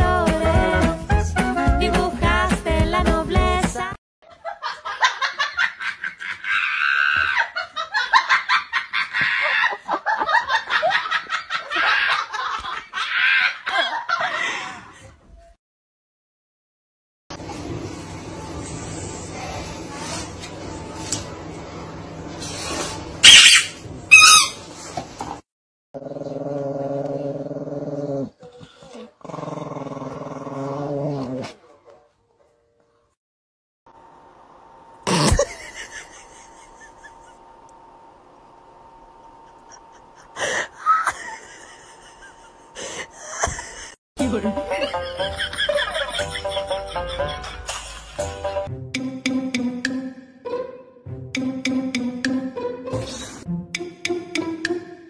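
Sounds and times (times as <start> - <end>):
people laughing: 4.3 - 14.9, 35.4 - 37.4, 39.5 - 48.2
small dog growling: 26.0 - 31.6.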